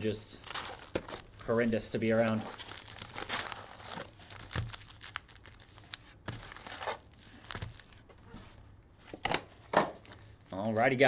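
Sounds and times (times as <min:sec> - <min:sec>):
foil packs crinkling: 0:00.0 - 0:08.0
cardboard box rustling: 0:00.5 - 0:05.7, 0:06.3 - 0:08.0.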